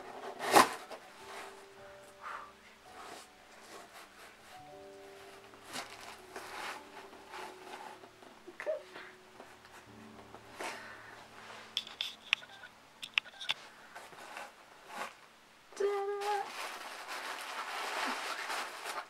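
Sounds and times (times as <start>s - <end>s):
tissue paper rustling: 0.0s - 12.6s, 13.6s - 15.3s, 15.9s - 19.0s
person humming: 15.7s - 16.5s.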